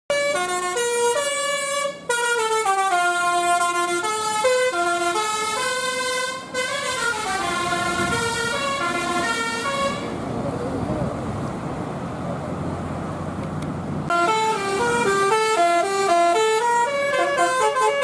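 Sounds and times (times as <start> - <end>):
musical air horn tune: 0.1 - 10.1, 14.1 - 18.0.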